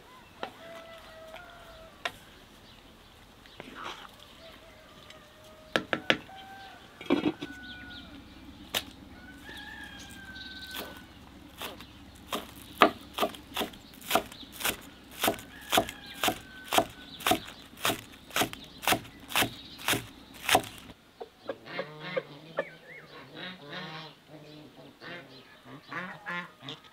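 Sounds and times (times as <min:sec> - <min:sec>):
knife chopping on wooden board: 0:11.6 - 0:20.9.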